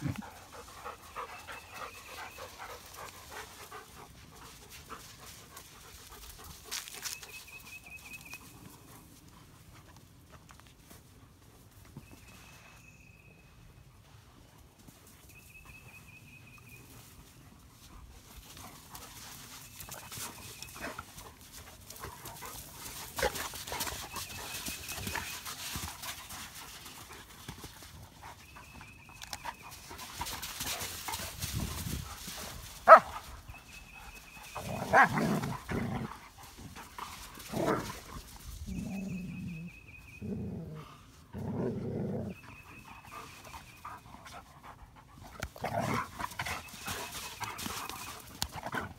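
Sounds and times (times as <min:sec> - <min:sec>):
dogs scuffling in sand: 0:00.0 - 0:40.0, 0:40.8 - 0:48.9
dogs barking and growling: 0:34.5 - 0:36.3.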